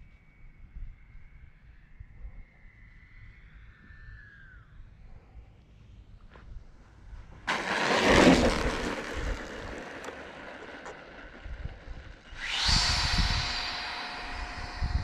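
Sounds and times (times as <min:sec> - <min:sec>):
ducted fan whine: 0:07.4 - 0:15.0
model jet whoosh: 0:07.5 - 0:15.0.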